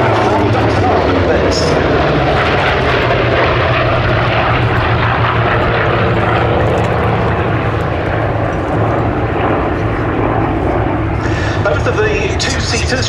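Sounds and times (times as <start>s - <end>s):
propeller planes flying past: 0.0s - 13.0s.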